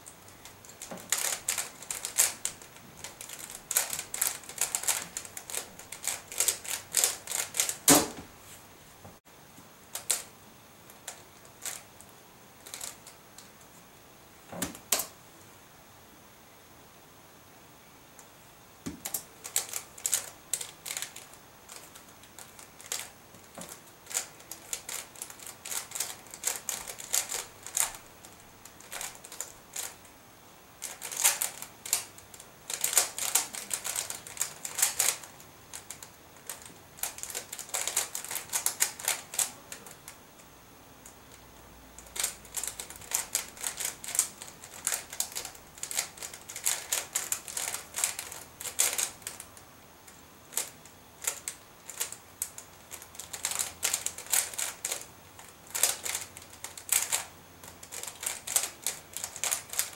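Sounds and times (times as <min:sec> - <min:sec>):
plastic puzzle clicking: 0:00.6 - 0:08.1, 0:18.9 - 0:30.0, 0:30.8 - 0:40.0, 0:42.0 - 0:49.4, 0:50.5 - 0:59.9.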